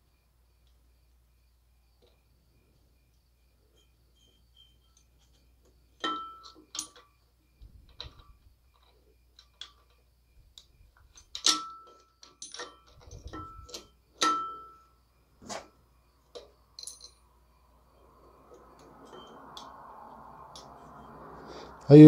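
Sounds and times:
metal tool clicks and clinks: 6.0s - 7.1s, 10.6s - 14.8s, 16.3s - 17.2s.

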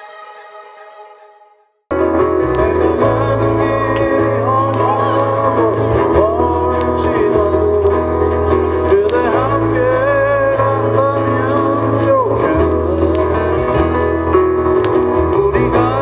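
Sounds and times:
acoustic guitar strumming: 0.0s - 16.0s
steady bass: 1.9s - 16.0s
man singing folk ballad: 2.2s - 14.3s, 14.9s - 16.0s.

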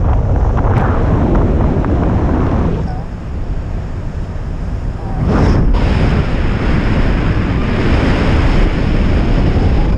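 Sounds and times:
wind roar over microphone: 0.0s - 9.9s.

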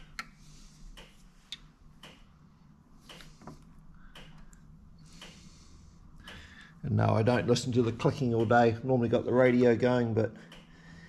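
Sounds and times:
clock ticking: 6.2s - 11.0s.

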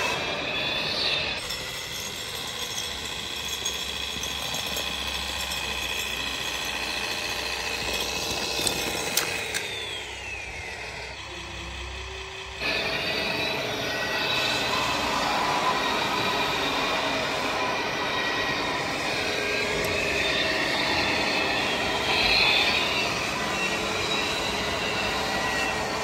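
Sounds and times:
model tractor running: 0.0s - 26.0s
sharp clicks: 8.4s - 9.9s
loud rushing noise: 12.6s - 26.0s.

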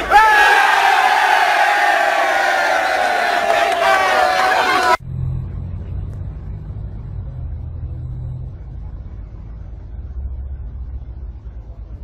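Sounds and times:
low steady hum: 5.0s - 12.0s.

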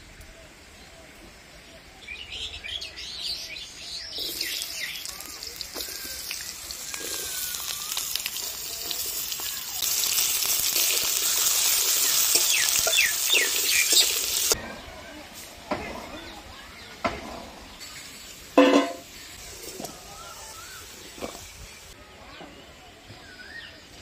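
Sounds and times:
potatoes sizzling in oil: 4.0s - 14.6s, 17.8s - 22.0s.

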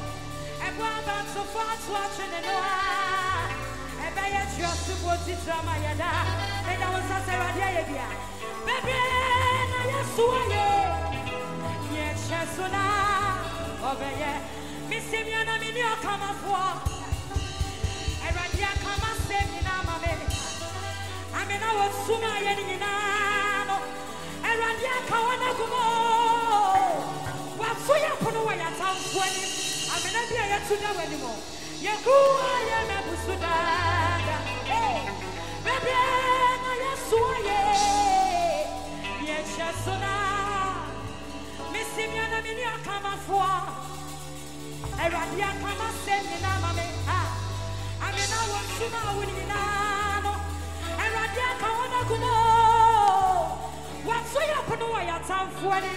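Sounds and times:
keyboard and bass playing: 0.0s - 55.9s
person singing over a band: 0.0s - 55.9s
steady drum beat: 16.4s - 26.0s.

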